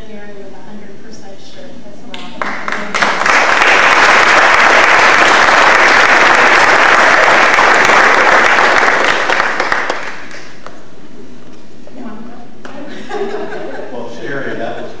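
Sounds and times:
audience applauding: 0:02.4 - 0:10.7.

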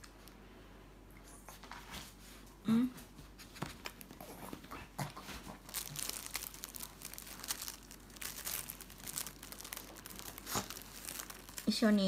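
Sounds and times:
dog chewing bread: 0:04.0 - 0:11.8.

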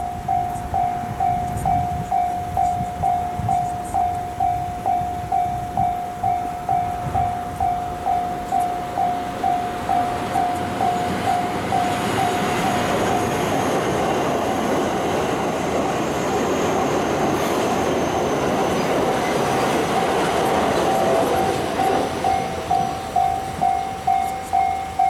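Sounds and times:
level crossing bell ringing: 0:00.0 - 0:13.4, 0:19.8 - 0:25.0
electric train passing: 0:00.0 - 0:25.0.

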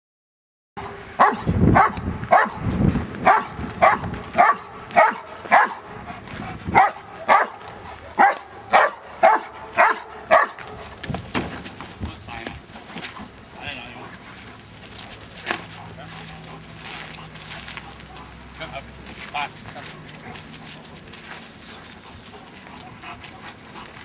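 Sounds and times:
dog barking: 0:00.8 - 0:02.6, 0:03.2 - 0:05.9, 0:06.7 - 0:07.6, 0:08.2 - 0:10.8.

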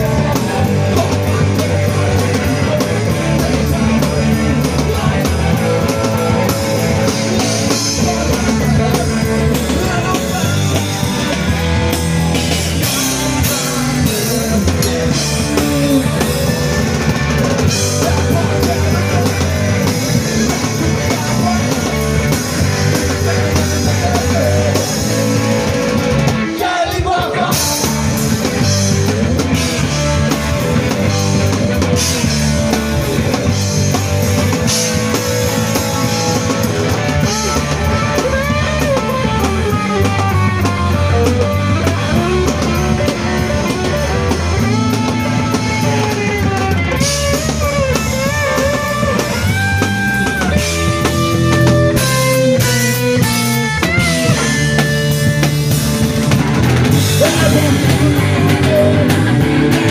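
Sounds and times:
person singing: 0:00.0 - 0:11.4, 0:12.8 - 0:16.9, 0:17.6 - 0:25.8, 0:26.4 - 0:30.9, 0:57.1 - 0:59.9
rock band playing live: 0:00.0 - 0:59.9.

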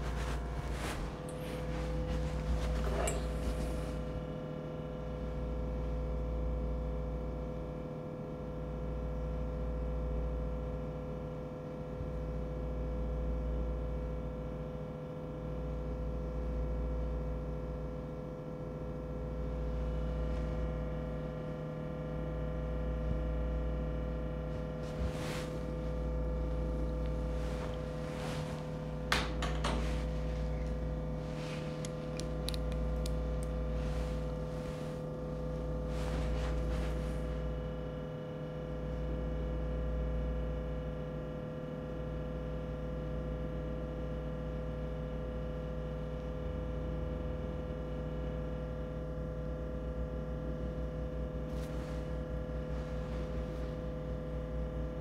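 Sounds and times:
steady background hum: 0:00.0 - 0:46.5, 0:47.1 - 0:55.0
sunglasses clicking on countertop: 0:29.1 - 0:29.8.

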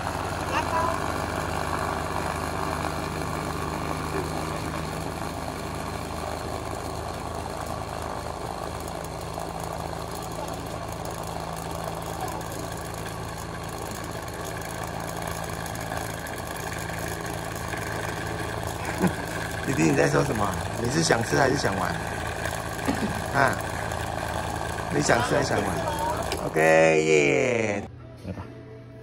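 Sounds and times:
cotton candy machine motor hum: 0:00.0 - 0:28.4.

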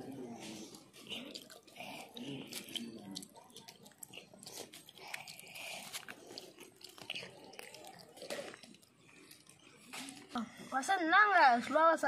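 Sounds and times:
crunching fried fish: 0:00.8 - 0:10.3.

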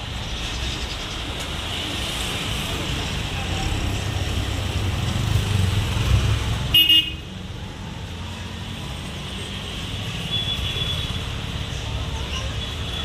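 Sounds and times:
road traffic engines: 0:00.0 - 0:13.0
vehicle horn toot: 0:06.7 - 0:07.2.

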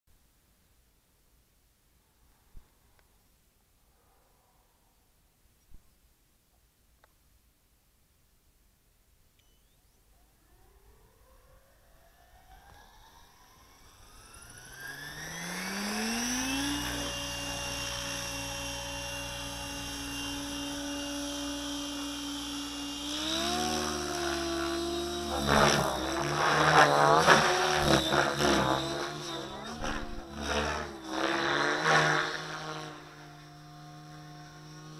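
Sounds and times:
rc helicopter motor whine: 0:09.4 - 0:34.9.

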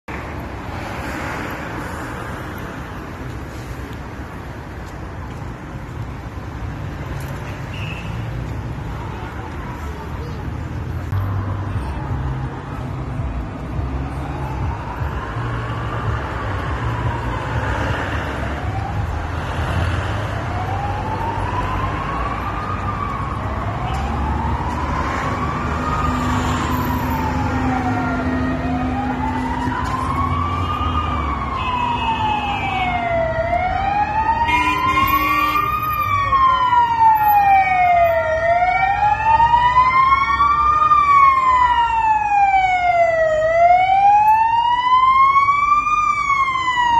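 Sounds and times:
fire engine siren wailing: 0:14.0 - 0:46.9.

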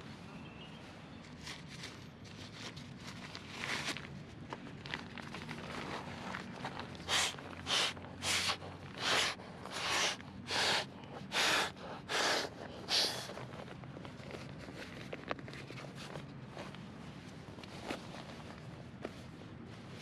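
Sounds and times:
puffs of air blowing: 0:07.0 - 0:13.4.

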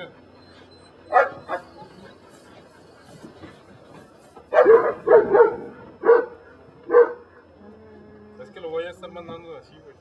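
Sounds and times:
dog barking: 0:01.1 - 0:01.9, 0:04.5 - 0:07.4.

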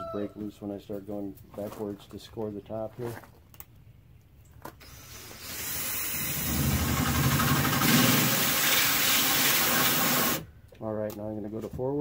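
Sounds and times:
cordless drill with hole saw grinding: 0:04.8 - 0:10.5.

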